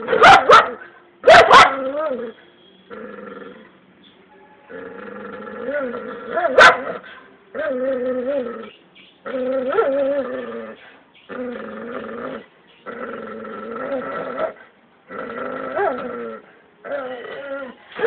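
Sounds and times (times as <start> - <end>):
animal growling: 4.7 - 6.5, 7.6 - 17.8.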